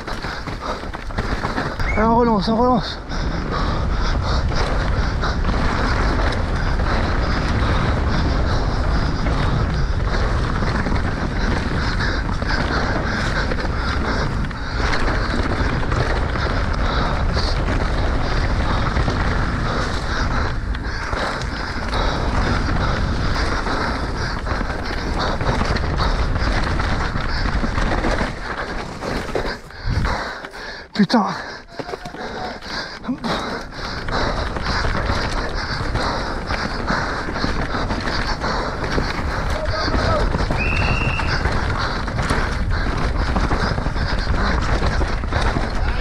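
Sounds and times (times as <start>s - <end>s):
wind rushing over microphone: 0.0s - 30.4s, 32.2s - 46.0s
bike rattling over bumps: 0.0s - 46.0s
tyres rolling over dirt and stones: 0.0s - 46.0s.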